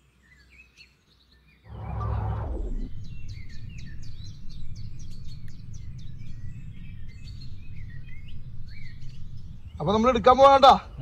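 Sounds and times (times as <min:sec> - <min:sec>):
small birds chirping: 0:00.0 - 0:11.0
low rumble: 0:01.7 - 0:11.0.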